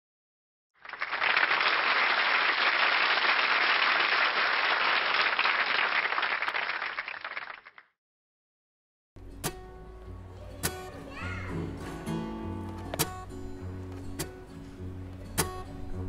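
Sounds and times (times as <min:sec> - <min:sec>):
crowd applauding: 0:00.8 - 0:07.9.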